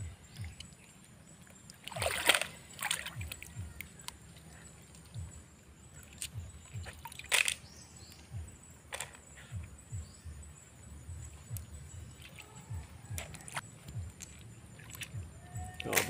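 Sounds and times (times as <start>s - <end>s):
light water splashes: 0.0s - 10.0s, 10.8s - 16.0s
faint low rumble: 2.0s - 15.8s
sharp little clicks of snails: 6.0s - 8.2s.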